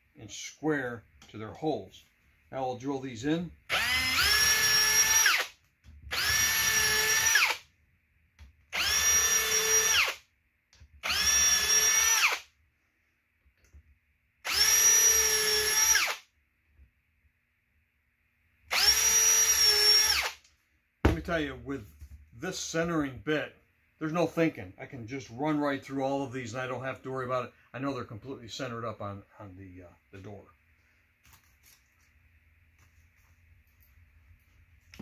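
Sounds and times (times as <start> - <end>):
cordless drill whining: 3.7 - 7.6, 8.7 - 10.2, 11.0 - 12.5, 14.4 - 16.2, 18.7 - 20.4.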